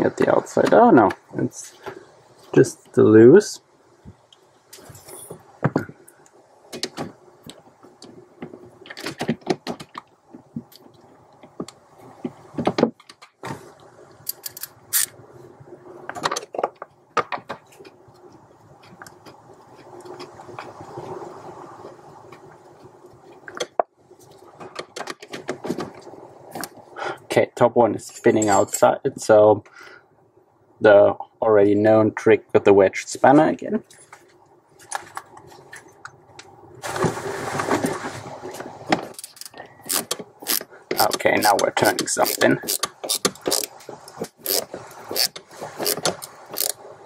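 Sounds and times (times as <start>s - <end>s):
wrench clicking on metal nuts: 39.2s - 43.7s, 44.4s - 46.8s.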